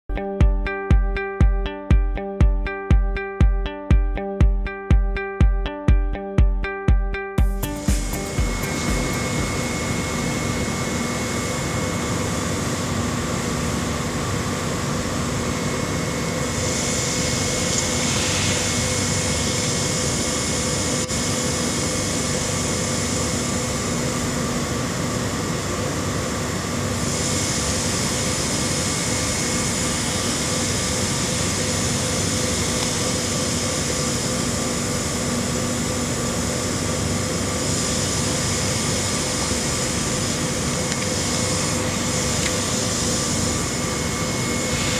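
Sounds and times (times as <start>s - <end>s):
steady machine hum: 0.1s - 44.9s
high hiss: 16.6s - 20.1s.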